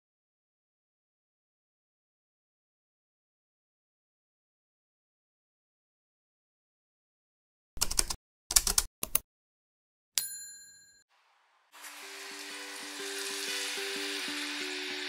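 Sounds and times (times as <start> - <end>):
bell-like ding: 10.2 - 11.0
tap water running into saucepan: 11.7 - 15.0.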